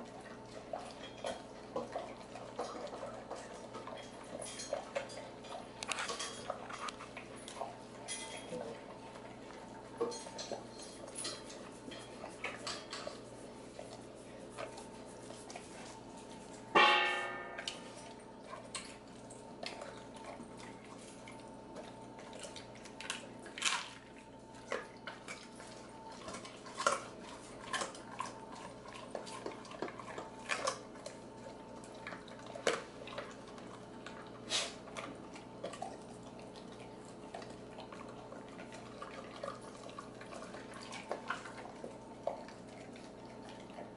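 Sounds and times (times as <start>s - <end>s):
dog licking and chewing: 0.0s - 16.7s, 17.6s - 43.9s
metal bowl ringing: 16.8s - 17.7s.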